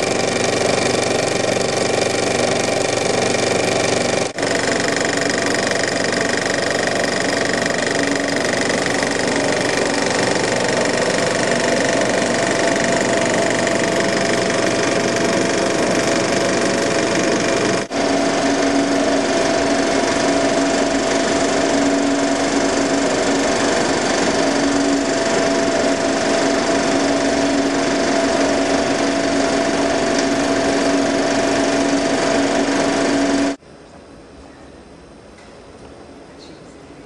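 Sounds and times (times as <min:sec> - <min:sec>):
film projector clattering: 0:00.0 - 0:33.6.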